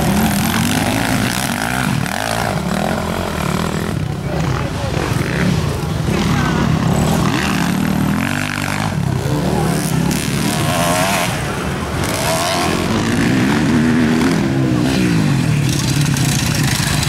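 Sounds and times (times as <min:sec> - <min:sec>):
motocross engines revving: 0:00.0 - 0:17.0.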